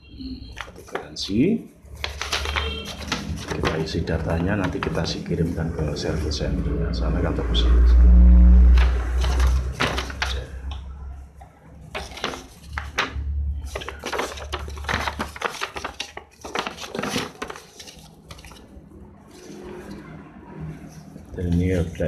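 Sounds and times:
stiff paper rustling: 0.5 - 1.2, 1.8 - 5.7, 8.8 - 20.0.

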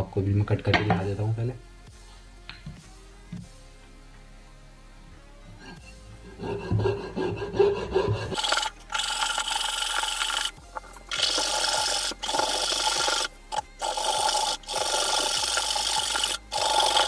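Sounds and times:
saw blade rasping through metal: 5.8 - 17.0.

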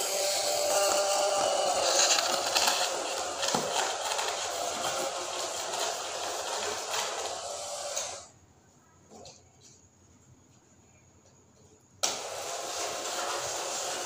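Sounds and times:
toy train motors whirring: 0.0 - 8.3, 12.0 - 14.0.

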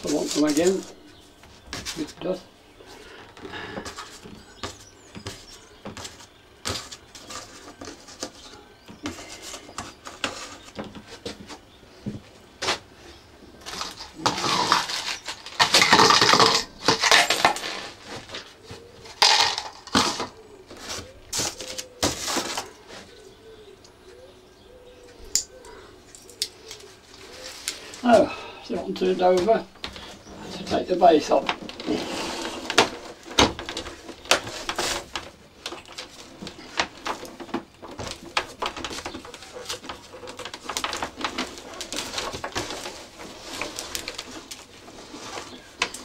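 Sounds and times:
rattling and scraping: 13.5 - 23.2, 29.0 - 46.0
screws and hand tools clattering: 13.6 - 18.4.

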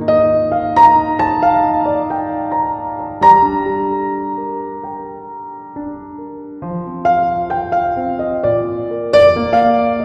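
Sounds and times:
slow instrumental music: 0.0 - 10.0.

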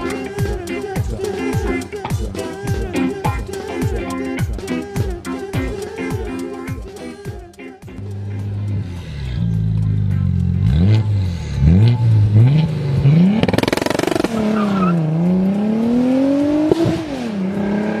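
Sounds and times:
car engine revving: 8.0 - 18.0.

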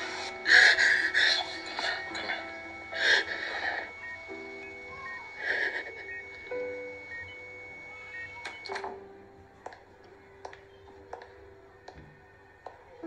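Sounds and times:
soft background music: 0.0 - 13.0
short electronic beeps: 1.9 - 8.9.

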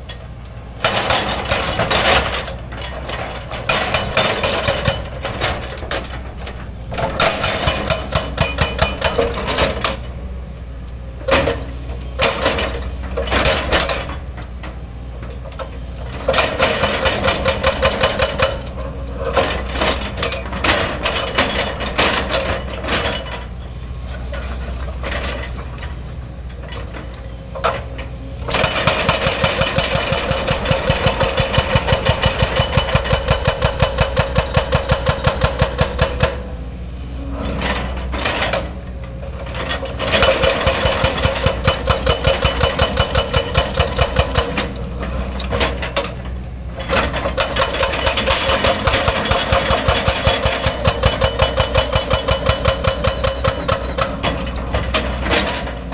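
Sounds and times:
hydraulic breaker hammering rock: 0.8 - 10.1, 12.2 - 14.2, 16.1 - 23.3, 27.6 - 36.6, 39.5 - 55.9.

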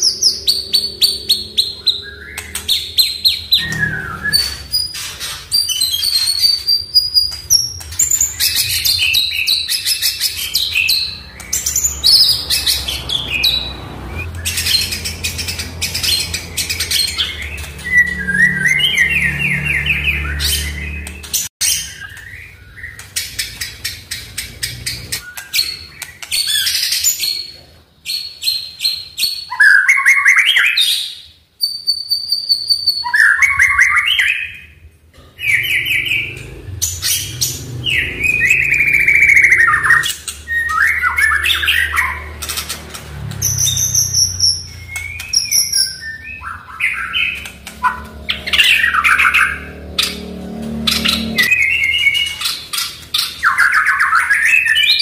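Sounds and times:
bird singing whistled phrases: 0.0 - 5.0, 43.4 - 48.0.

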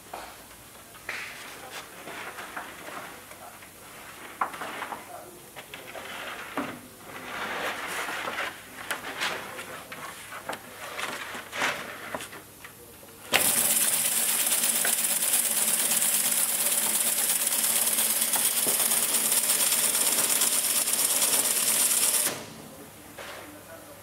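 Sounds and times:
machine rapid clatter: 13.4 - 22.6.

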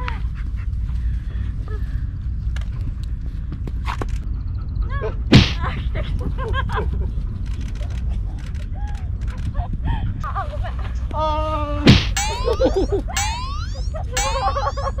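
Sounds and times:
wind buffeting microphone: 4.4 - 11.1
racket hitting shuttlecock: 5.3 - 5.6, 11.9 - 14.7.

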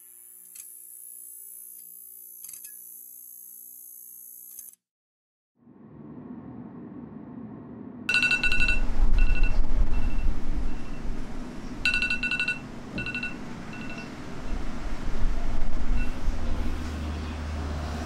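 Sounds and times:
low rumble: 5.6 - 12.4
smartphone ringing with beeps: 8.1 - 11.0, 11.9 - 14.1.

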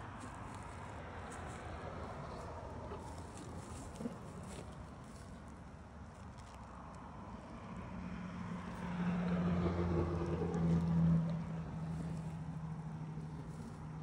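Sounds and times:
vehicle engine passing: 7.1 - 14.0.

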